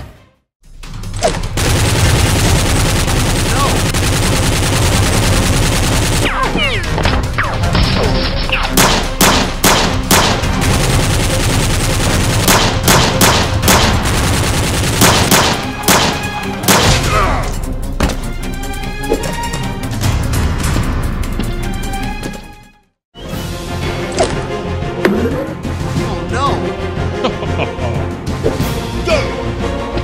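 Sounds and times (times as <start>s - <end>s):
background music: 0.0s - 30.0s
gunfire: 1.2s - 7.9s, 8.6s - 17.5s.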